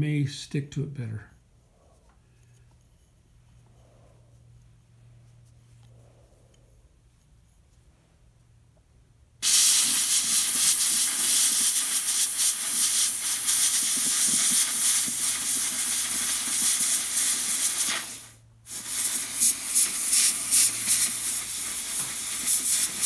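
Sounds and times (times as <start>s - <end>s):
compressed air blasting grit: 9.4s - 23.0s.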